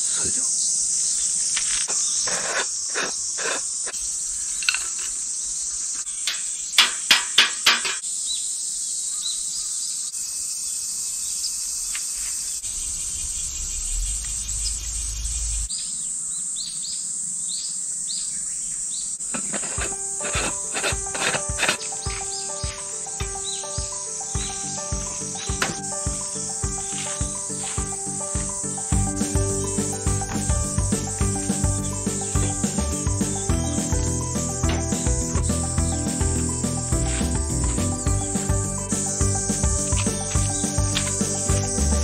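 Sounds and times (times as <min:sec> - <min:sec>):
cicadas chorus: 0:00.0 - 0:42.0
music: 0:19.6 - 0:42.0.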